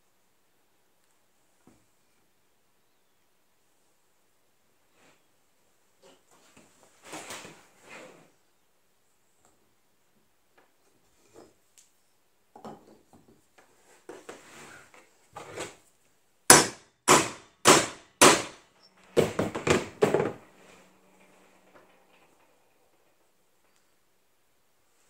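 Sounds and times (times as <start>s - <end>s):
hammer striking setting tool: 16.5s - 20.4s.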